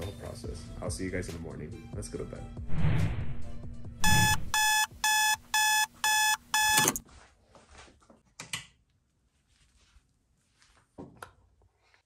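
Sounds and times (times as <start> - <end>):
digital alarm clock beeping: 4.0 - 7.0.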